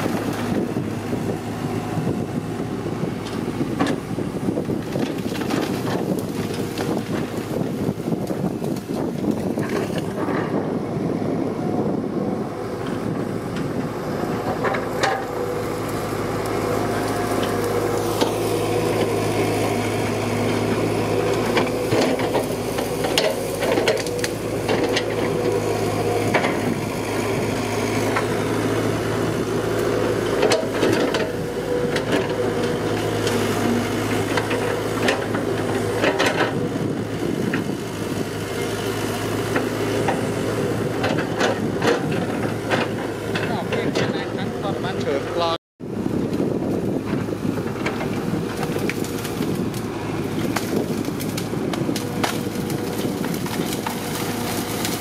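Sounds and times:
excavator diesel engine running: 0:00.0 - 0:55.0
sharp knocks and cracks: 0:21.3 - 0:25.3, 0:47.8 - 0:49.8, 0:50.4 - 0:55.0.

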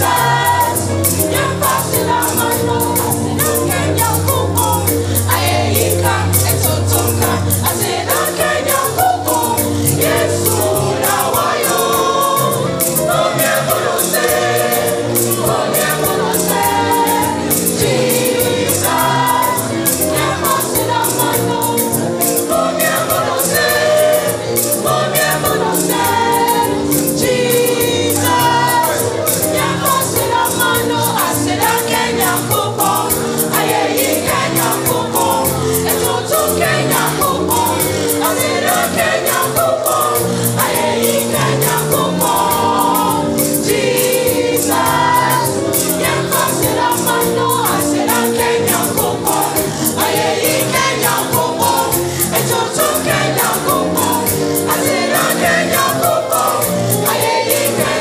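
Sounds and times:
gospel choir singing: 0:00.0 - 0:58.0.

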